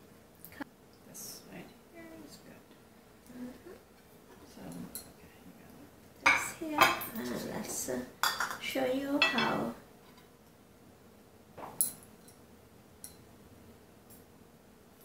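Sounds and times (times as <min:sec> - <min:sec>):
dishes clinking: 0:06.2 - 0:07.4, 0:08.2 - 0:08.6, 0:09.2 - 0:09.8.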